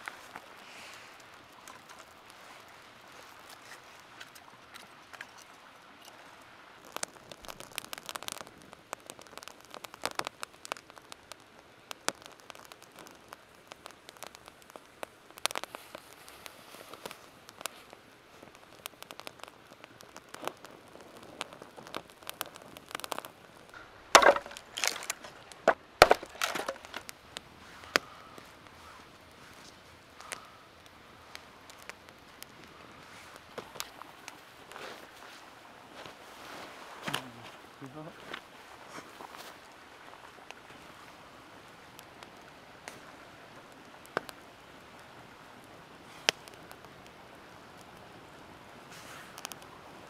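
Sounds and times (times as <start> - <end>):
campfire crackling: 0.0 - 50.0
sharp cracks of wood: 6.8 - 35.3, 37.0 - 37.5, 46.2 - 48.0.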